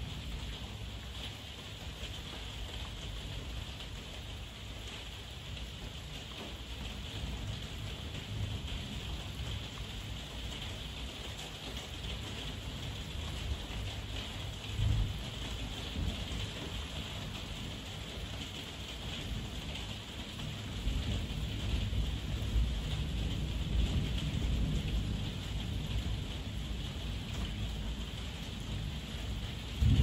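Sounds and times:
low rumble of thunder: 6.6 - 11.3, 12.0 - 30.0
heavy rain hissing: 6.8 - 30.0.

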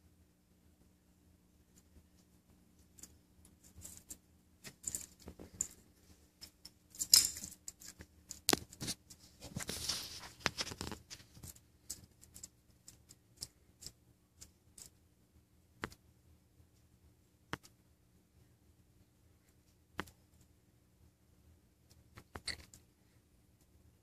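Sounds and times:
scrape: 8.8 - 11.4.

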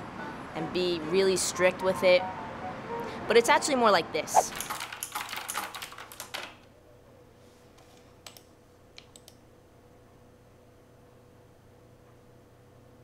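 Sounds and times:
rapid keyboard typing: 4.5 - 6.6.

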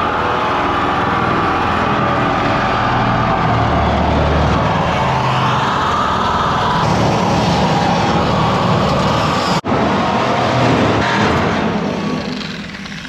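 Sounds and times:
reciprocating saw cutting steel: 6.7 - 13.0.

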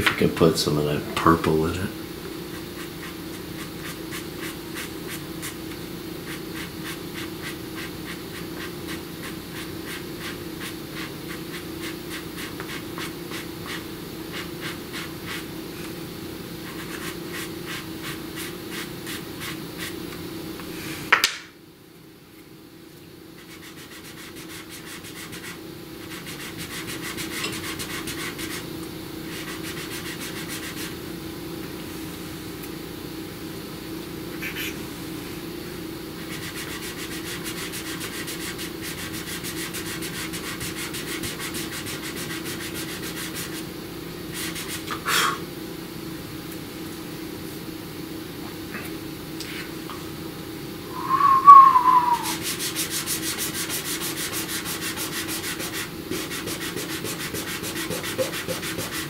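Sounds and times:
pastel scratching on paper: 2.5 - 5.6, 23.4 - 28.6, 29.3 - 30.9, 36.2 - 43.6, 52.4 - 59.0
low hum: 50.9 - 52.4.

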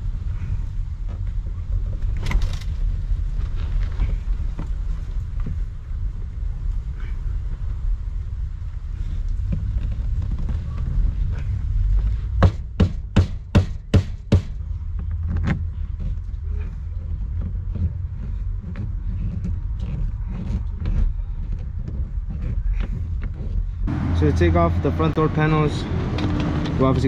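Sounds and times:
steady low rumble: 0.0 - 27.0
sharp knocks on car panel: 12.4 - 14.6.

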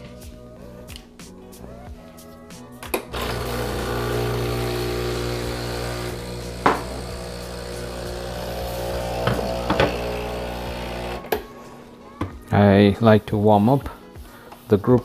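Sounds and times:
espresso pump humming: 3.1 - 11.3.

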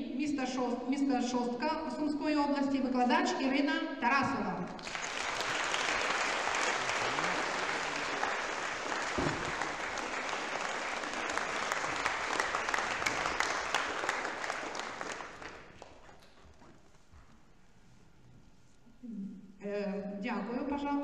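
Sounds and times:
audience applauding: 4.8 - 16.7.

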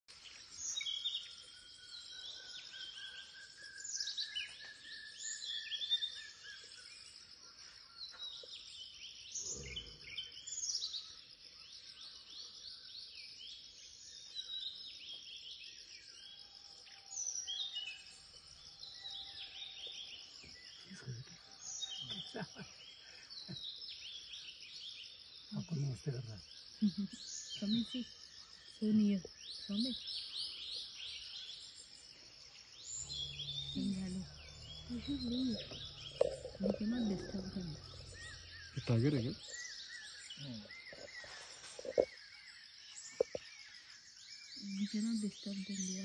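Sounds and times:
birds chirping and calling: 0.1 - 11.1, 16.0 - 46.0
high insect drone: 30.4 - 43.4.

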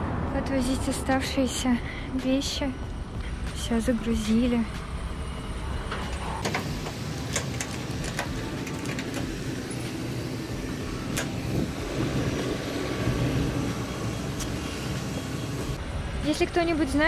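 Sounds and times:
rumble of street traffic: 0.0 - 17.0
sharp clicks and knocks: 5.9 - 9.4.

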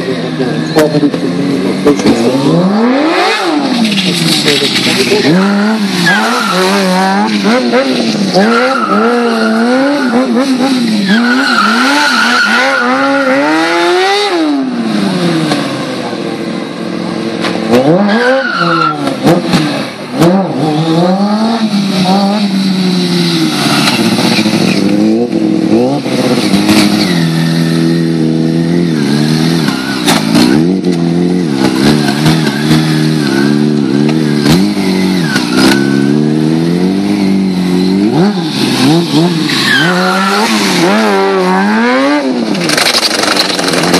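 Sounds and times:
motorcycle engine revving: 0.0 - 43.9
tyre squeal: 4.8 - 7.3, 8.2 - 13.6, 18.0 - 19.2, 28.9 - 30.7, 31.7 - 36.5, 37.2 - 41.1.

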